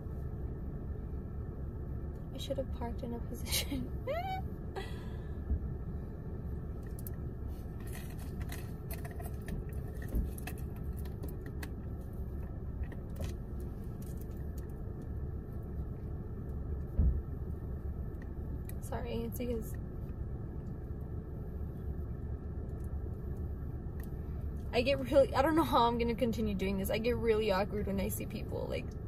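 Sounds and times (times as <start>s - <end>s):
low rumble inside car: 0.0s - 29.0s
light clicks and rattles: 7.8s - 15.8s
dull thump: 16.9s - 17.2s.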